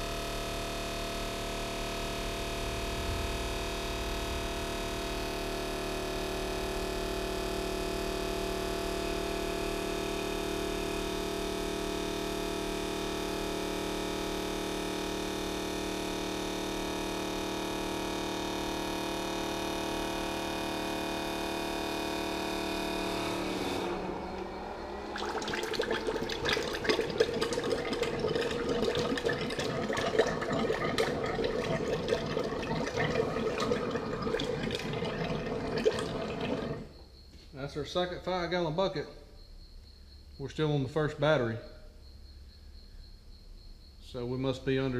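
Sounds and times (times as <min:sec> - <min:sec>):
oil gurgling and spluttering: 0:01.7 - 0:07.2, 0:23.2 - 0:37.0
transfer pump whining: 0:22.8 - 0:36.9.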